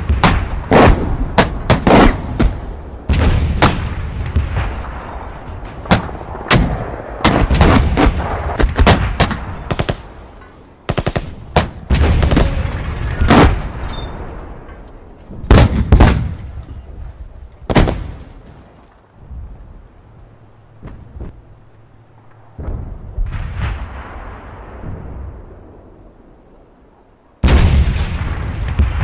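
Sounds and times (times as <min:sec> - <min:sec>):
single gunshots: 0:00.0 - 0:04.8, 0:17.7 - 0:18.3
low rumble: 0:00.0 - 0:29.0.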